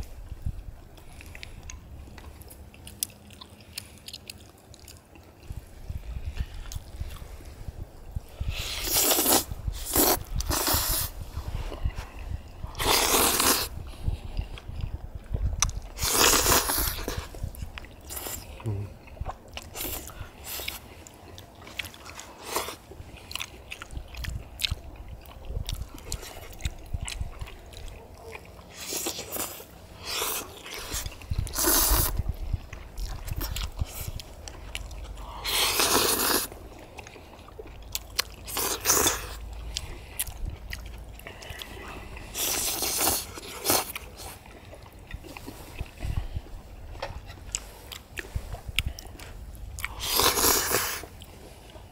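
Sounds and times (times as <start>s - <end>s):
chewing and lip-smacking: 0.0s - 51.9s
slurping noodles: 8.3s - 14.7s, 15.9s - 18.8s, 28.6s - 34.2s, 35.2s - 37.7s, 38.4s - 40.4s, 41.2s - 46.5s, 49.8s - 51.9s.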